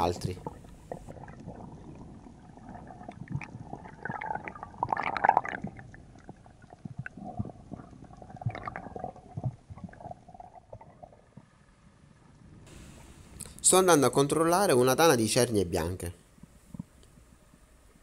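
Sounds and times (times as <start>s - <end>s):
underwater gurgling: 0.0s - 13.4s.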